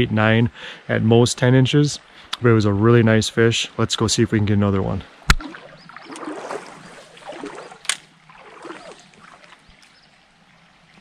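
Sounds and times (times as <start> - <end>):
water sloshing: 5.1 - 10.2.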